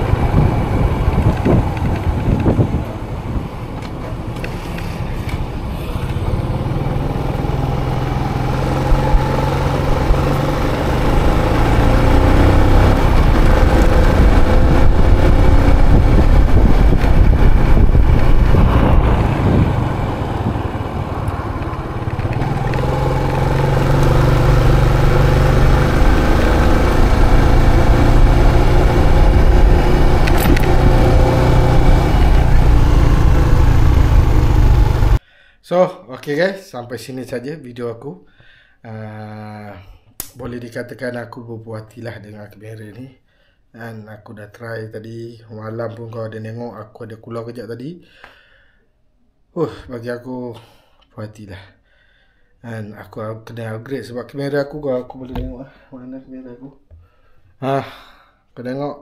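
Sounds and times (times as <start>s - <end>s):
wind rushing over microphone: 0.0s - 3.8s, 11.2s - 22.8s, 24.4s - 35.2s
motorcycle engine running: 0.0s - 35.2s.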